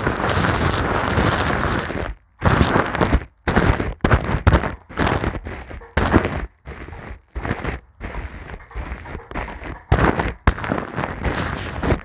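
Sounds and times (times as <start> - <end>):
brush rustling on microphone: 0.0 - 12.0.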